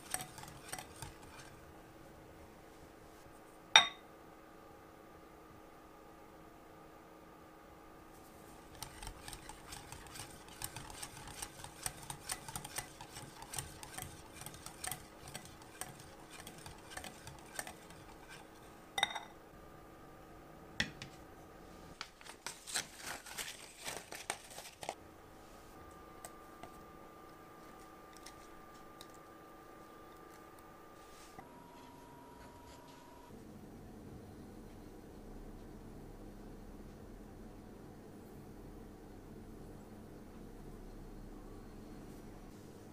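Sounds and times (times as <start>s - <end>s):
whisk clicking and scraping glass: 0.0s - 1.6s, 8.7s - 18.6s
ringing tap on glass bowl: 3.8s - 4.0s.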